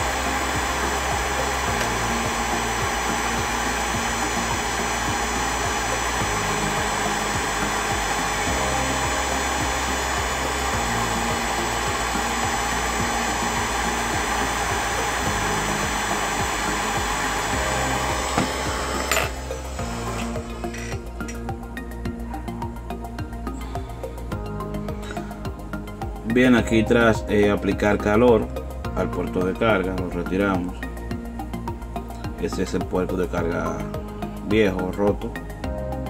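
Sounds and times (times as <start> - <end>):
hot air gun blowing: 0.0 - 21.5
quiet background music: 0.0 - 36.0.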